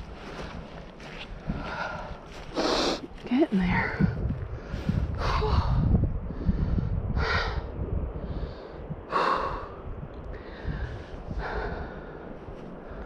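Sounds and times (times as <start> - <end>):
wind rumble on microphone: 0.0 - 13.0
woman breathing hard: 4.5 - 13.0.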